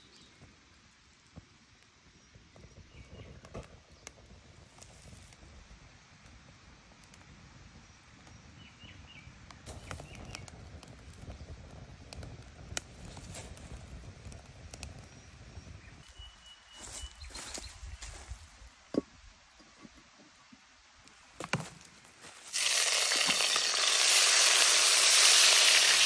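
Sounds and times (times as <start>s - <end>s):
twig fire crackling and popping: 0.0s - 8.5s, 9.4s - 16.0s, 21.0s - 26.0s.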